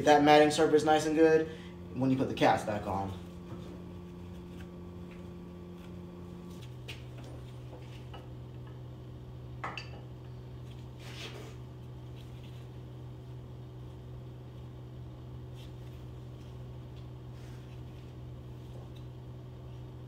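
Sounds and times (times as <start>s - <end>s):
steady low hum: 0.0s - 20.0s
short scrapes: 11.0s - 11.6s.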